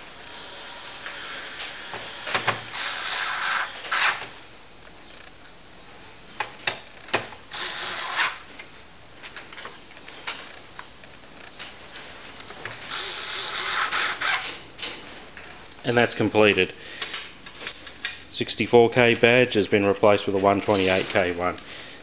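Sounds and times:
screwdriver scraping: 0:00.8 - 0:04.3, 0:07.5 - 0:08.4, 0:12.9 - 0:14.6.

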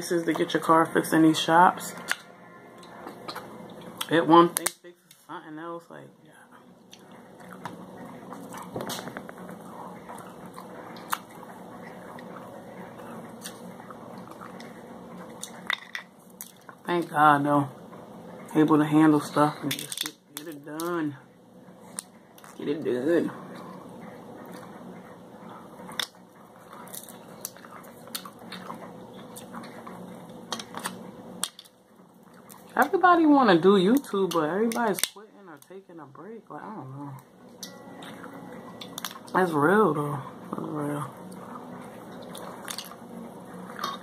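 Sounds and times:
person chewing: 0:06.9 - 0:16.7, 0:25.9 - 0:31.6, 0:41.3 - 0:42.9.

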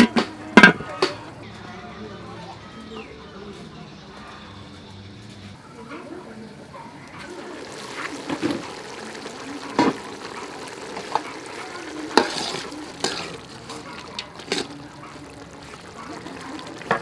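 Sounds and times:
soup boiling in a pot: 0:07.0 - 0:17.0
sharp pops from fire: 0:08.0 - 0:17.0.

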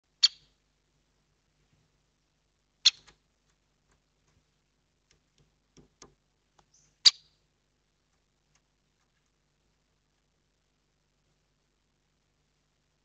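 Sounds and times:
woodpecker sharp kik calls: 0:00.2 - 0:00.6, 0:02.8 - 0:03.2, 0:06.7 - 0:07.4.

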